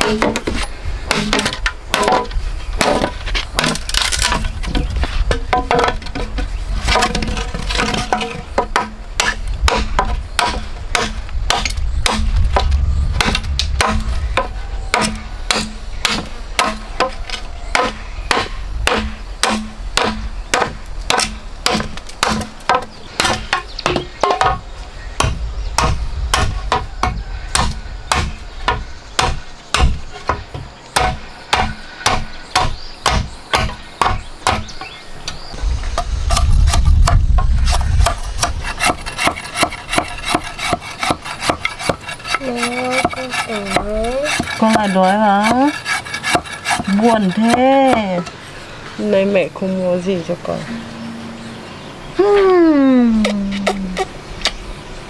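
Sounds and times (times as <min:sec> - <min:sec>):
tool striking wood: 0:17.8 - 0:24.6, 0:36.3 - 0:48.3.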